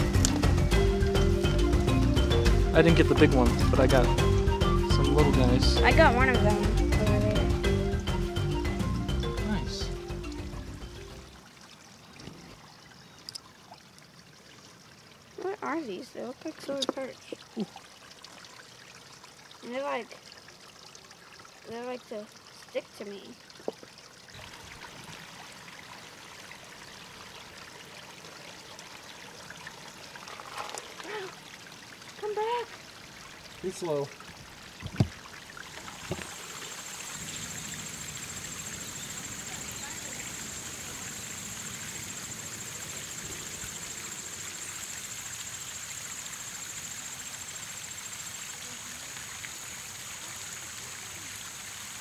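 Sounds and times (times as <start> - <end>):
creek water trickling: 0.0 - 52.0
insect trill: 36.0 - 52.0.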